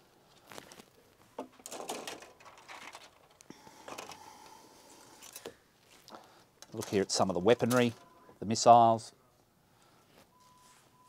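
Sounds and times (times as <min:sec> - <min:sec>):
plastic sprues rustling: 0:00.3 - 0:04.2.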